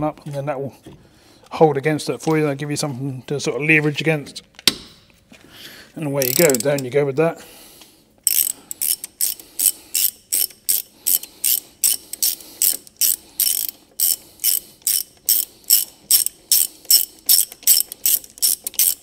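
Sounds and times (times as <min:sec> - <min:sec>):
hand ratchet clicking: 0:06.2 - 0:06.9, 0:08.2 - 0:19.0.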